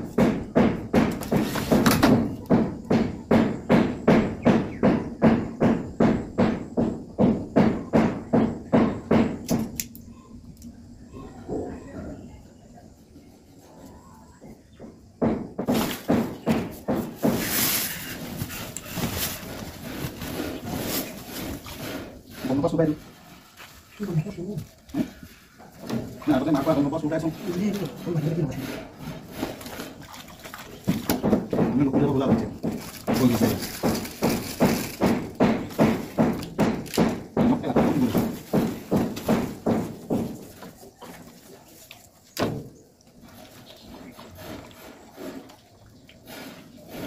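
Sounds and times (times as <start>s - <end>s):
short scrapes and knocks: 15.6s - 23.8s, 25.0s - 37.2s, 43.2s - 47.0s
plastic sack rustling and crinkling: 17.1s - 24.2s, 32.4s - 36.2s.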